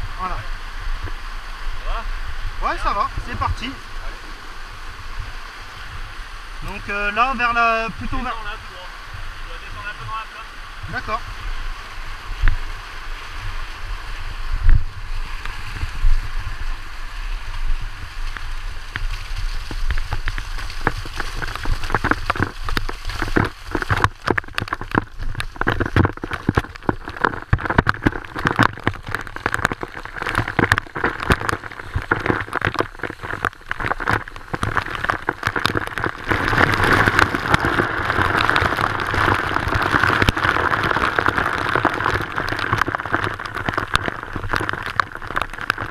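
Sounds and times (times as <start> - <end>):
waterfall rushing: 0.0 - 19.0.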